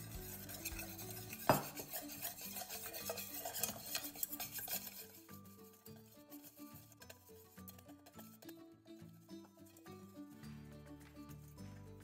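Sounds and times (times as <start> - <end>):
whisk scraping metal saucepan: 0.0 - 10.3.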